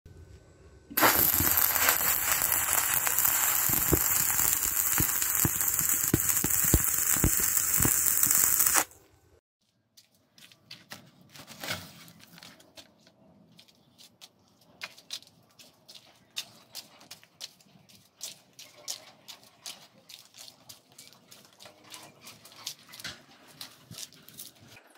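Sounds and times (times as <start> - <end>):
sharp pops: 0.9 - 9.0
arc welding crackling and hissing: 1.0 - 9.0.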